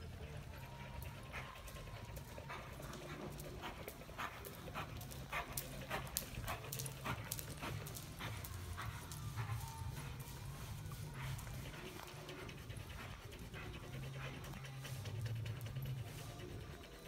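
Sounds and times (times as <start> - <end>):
horse hoofbeats on dirt: 0.5 - 17.0.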